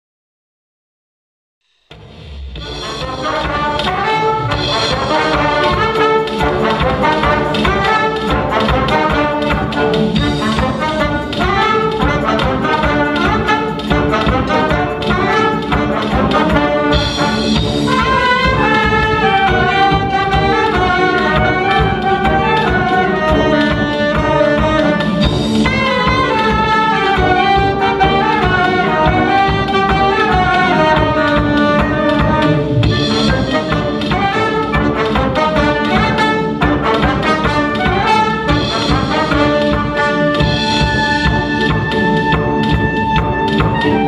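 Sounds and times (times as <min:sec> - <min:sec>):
brass band playing: 0:01.9 - 0:44.0.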